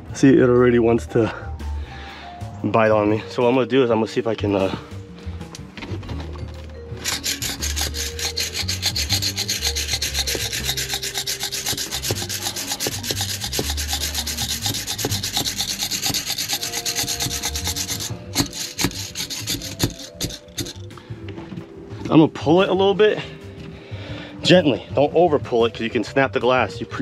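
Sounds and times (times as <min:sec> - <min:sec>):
rubber gasket scraping on glass: 0:07.0 - 0:20.8.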